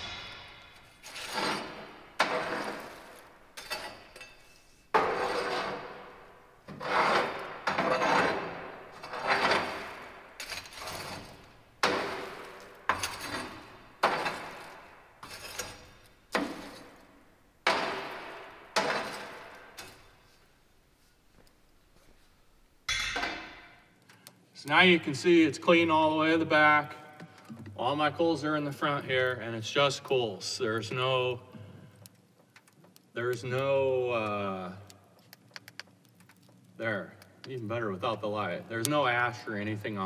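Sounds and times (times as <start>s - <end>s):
metal rod scraping ash on grate: 0.0s - 17.0s, 17.6s - 20.4s.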